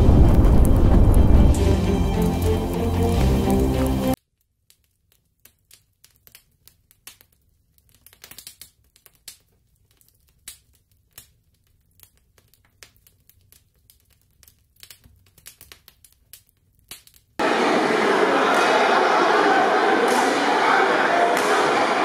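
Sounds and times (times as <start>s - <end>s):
low hum: 0.0s - 3.2s.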